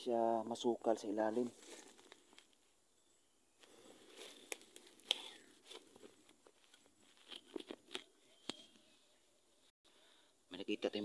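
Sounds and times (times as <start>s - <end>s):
leaves and twigs rustling: 1.0s - 2.8s, 3.6s - 9.0s.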